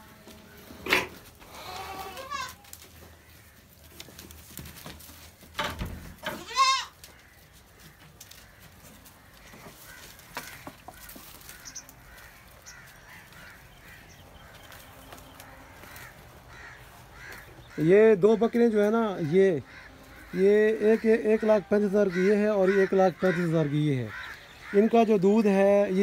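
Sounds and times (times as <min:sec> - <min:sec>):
farmyard background: 0:00.0 - 0:26.0
goat bleating: 0:01.4 - 0:02.8, 0:06.2 - 0:07.2, 0:15.4 - 0:25.0.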